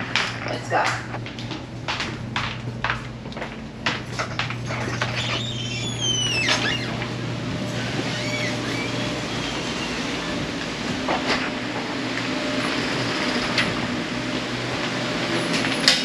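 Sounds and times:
motor hum: 0.0 - 16.0
high squeal from target carrier: 7.7 - 10.4.

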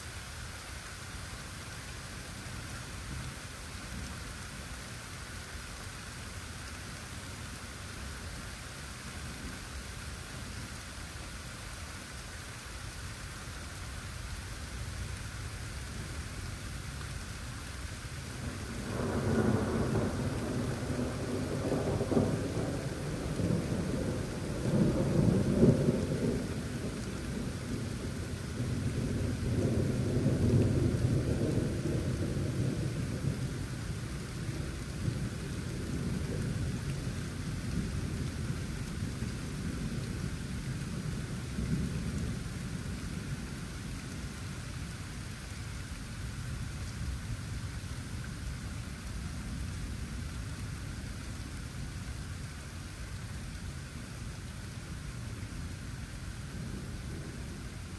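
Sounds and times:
steady rain falling: 0.0 - 57.9
rolling thunder: 18.4 - 40.3.

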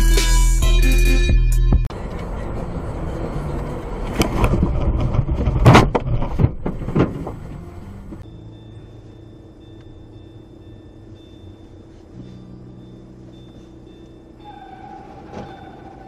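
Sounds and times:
car road and engine noise: 1.7 - 16.0
sharp knocks and thumps: 4.1 - 8.2
faint high whine: 8.2 - 16.0.

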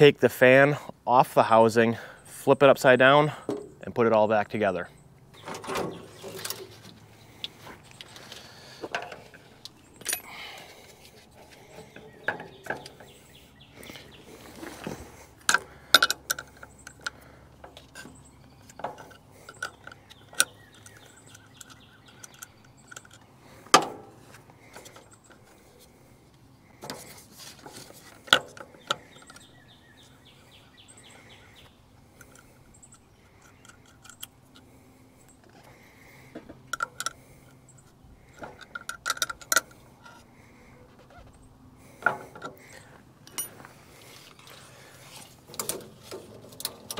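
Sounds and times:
small parts rattling: 5.4 - 25.9, 32.0 - 40.2.

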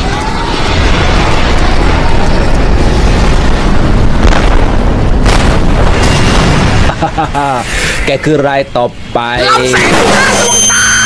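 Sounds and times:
sharp bangs: 0.0 - 8.2
explosion and fire rumble: 0.0 - 11.0.

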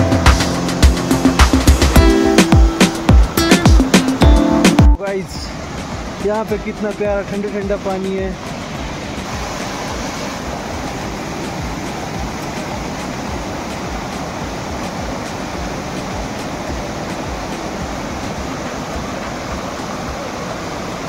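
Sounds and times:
stream rushing over rocks: 0.0 - 21.0.

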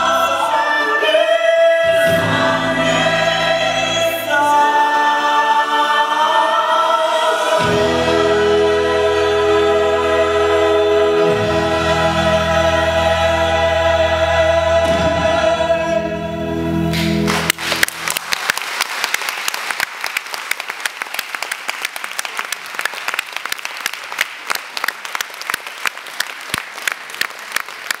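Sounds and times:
ensemble singing held chord: 0.0 - 17.4
audience applause: 17.0 - 28.0.

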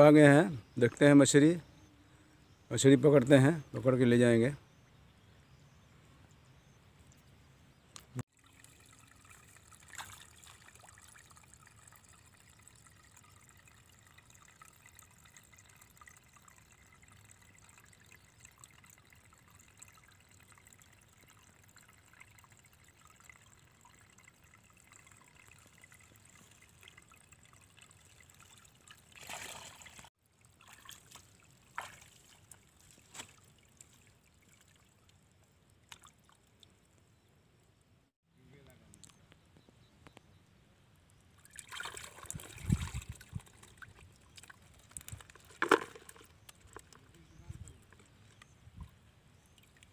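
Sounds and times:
water trickling: 8.0 - 37.8, 41.4 - 49.9.

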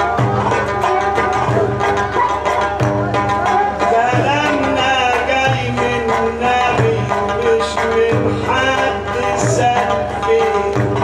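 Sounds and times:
hand drums beating: 0.0 - 11.0.

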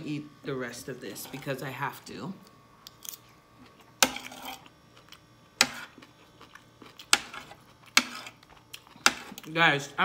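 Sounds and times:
metal spoon scraping a plate: 4.0 - 4.7
faint chewing: 5.9 - 9.5.

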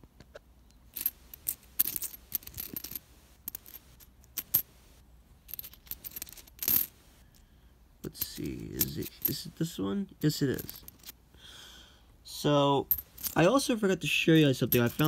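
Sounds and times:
coins clinking together: 0.9 - 4.7, 5.5 - 7.0, 8.1 - 9.6, 10.3 - 11.1, 14.4 - 15.0.

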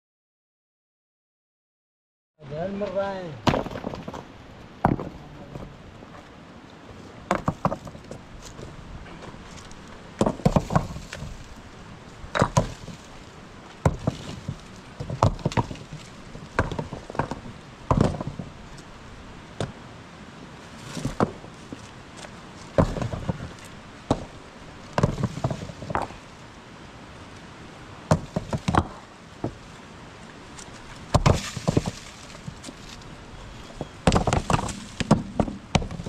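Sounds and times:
rocks clacking together: 2.8 - 5.8, 7.3 - 11.6, 12.2 - 18.9, 20.8 - 26.3, 28.1 - 29.6, 30.5 - 36.0.

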